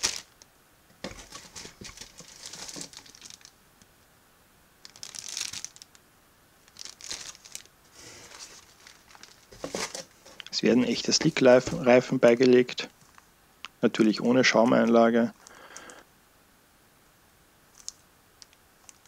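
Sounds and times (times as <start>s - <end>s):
plastic bags crinkling: 0.0s - 0.4s, 1.0s - 3.6s, 4.8s - 6.0s, 6.6s - 11.4s.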